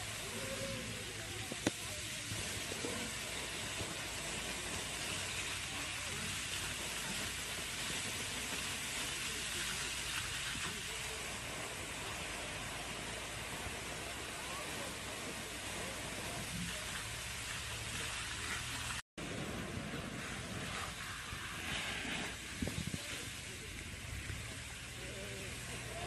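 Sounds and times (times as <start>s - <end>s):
faint voices: 0.0s - 26.0s
water spraying from sprinkler: 0.0s - 26.0s.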